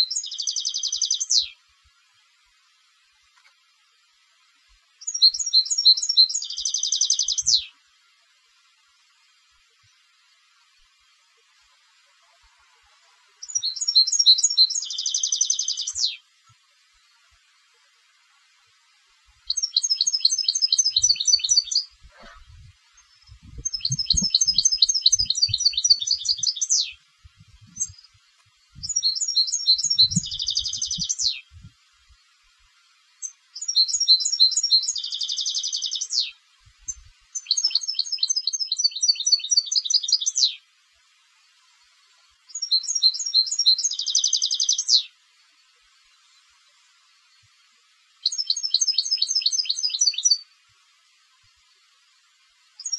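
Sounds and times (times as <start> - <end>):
goldfinch singing: 0.0 - 1.6, 5.0 - 7.7, 13.4 - 16.2, 19.5 - 31.7, 33.2 - 40.6, 42.5 - 45.1, 48.2 - 50.4.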